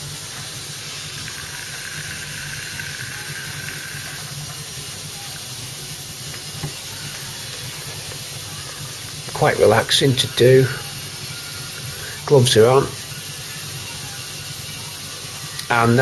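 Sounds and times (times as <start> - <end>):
angle grinder grinding metal: 0.2 - 5.0.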